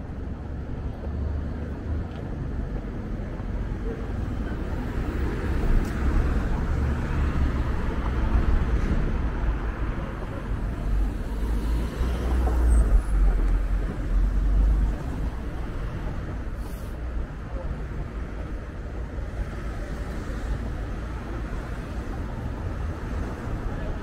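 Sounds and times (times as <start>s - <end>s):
cars passing: 0.0s - 24.0s
low traffic rumble: 0.0s - 24.0s.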